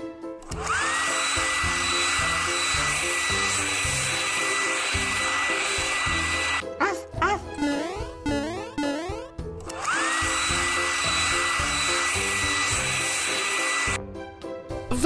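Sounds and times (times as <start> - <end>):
light background music: 0.0 - 15.0
hair dryer whining: 0.4 - 6.7, 9.6 - 14.1.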